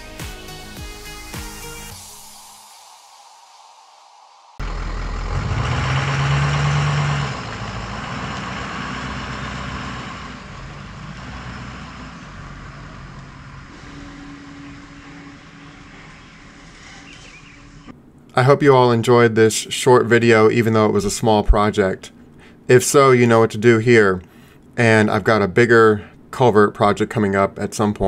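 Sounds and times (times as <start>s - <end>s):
engine running: 4.6s - 17.9s.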